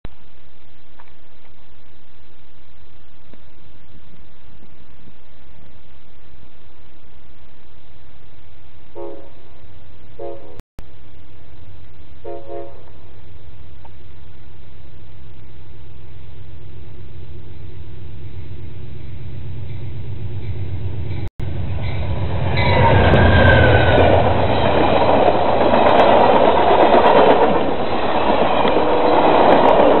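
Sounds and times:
train passing with low rumble: 0.1 - 30.0
high-pitched squeal: 17.6 - 30.0
wheels rattling on rails: 18.2 - 30.0.

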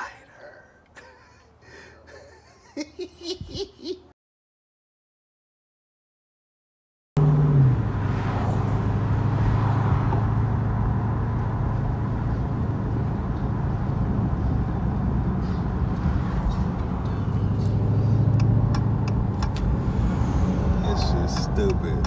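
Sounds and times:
car engine low note: 7.2 - 22.0
road noise: 7.2 - 22.0.

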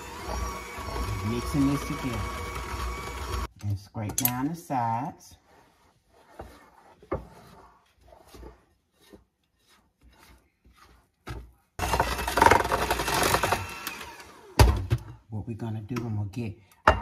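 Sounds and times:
electric hand mixer running: 0.0 - 3.5, 11.8 - 14.7
spatula scraping a glass bowl: 5.3 - 11.2.

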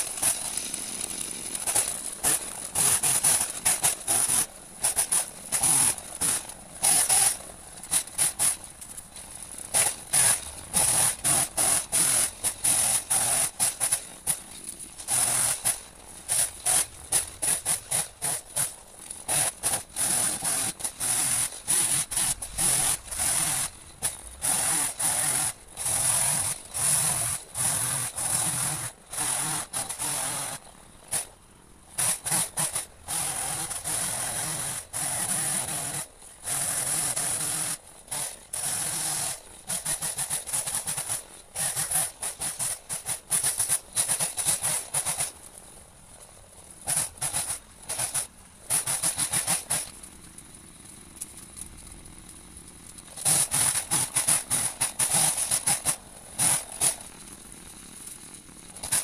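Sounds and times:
saw cutting wood: 0.0 - 45.4, 46.8 - 50.0, 53.0 - 59.0.

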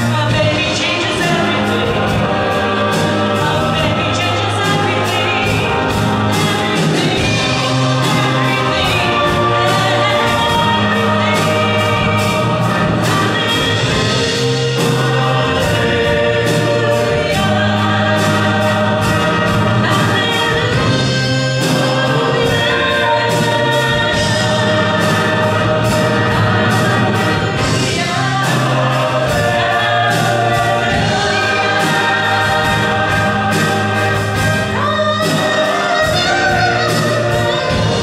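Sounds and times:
instrumental accompaniment with beat: 0.0 - 38.0
large choir singing: 0.0 - 38.0.

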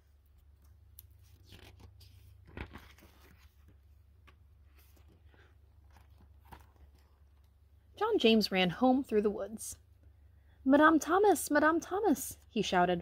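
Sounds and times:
book page turning: 0.4 - 7.5.

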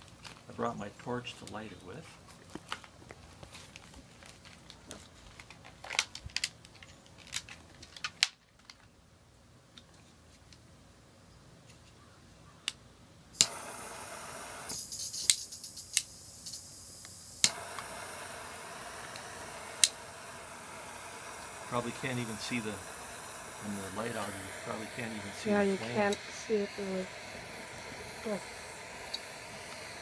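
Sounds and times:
handling clicks and rustling: 2.2 - 8.9
hissing torch flame: 13.4 - 30.0
torch lighter clicking: 13.4 - 30.0.

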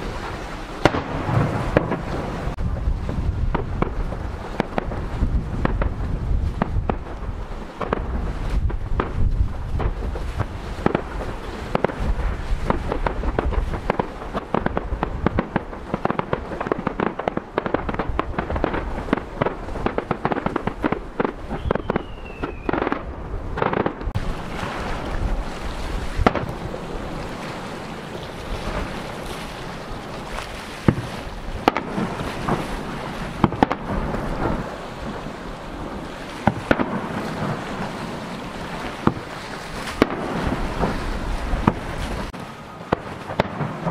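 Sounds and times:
fireworks bangs: 0.0 - 43.9
fireworks crackling: 0.0 - 43.9
falling whistle: 21.5 - 22.8.

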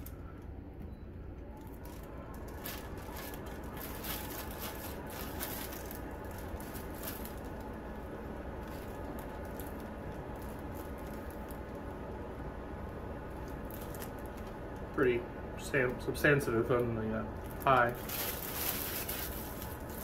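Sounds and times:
air purifier fan running: 0.0 - 20.0
plastic film crinkling: 1.6 - 12.0, 12.8 - 15.1, 16.7 - 20.0.

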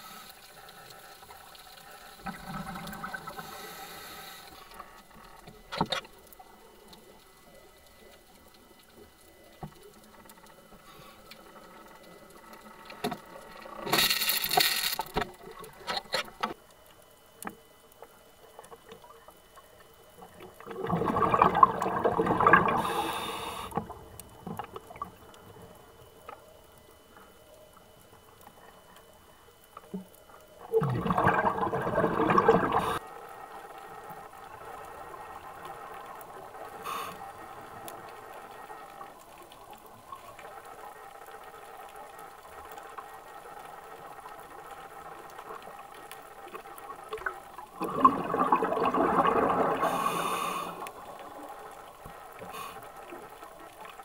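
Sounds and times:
faint underwater hum: 0.0 - 54.0
diver's regulator bubbles gushing: 2.2 - 3.5, 20.2 - 26.0, 30.6 - 33.0, 44.0 - 54.0.

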